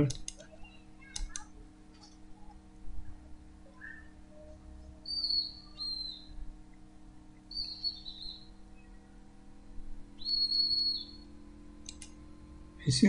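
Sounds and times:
small bird chirping: 0.0 - 2.6, 3.7 - 9.4, 10.1 - 12.1
steady low hum: 0.0 - 13.0.

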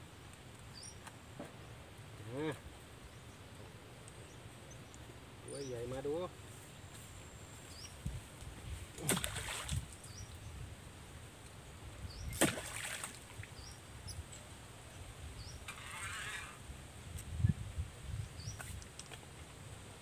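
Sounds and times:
water splashing: 8.9 - 10.1, 12.3 - 13.6.

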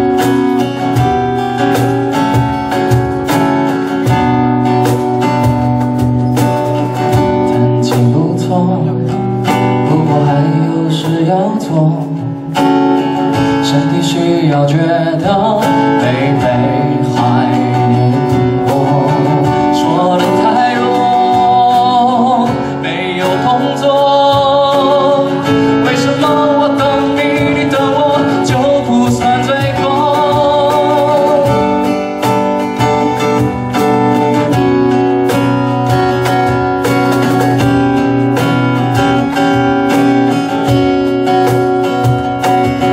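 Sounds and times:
acoustic guitar strummed and picked: 0.0 - 42.9
man singing: 6.9 - 35.3.

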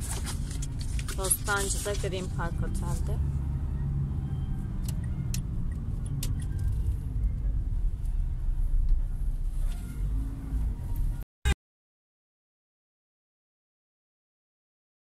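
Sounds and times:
engine and road rumble: 0.0 - 11.3.

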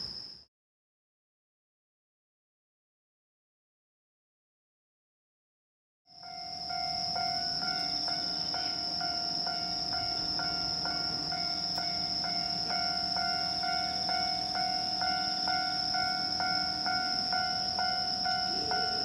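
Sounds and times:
level crossing bell dinging: 6.3 - 19.0.

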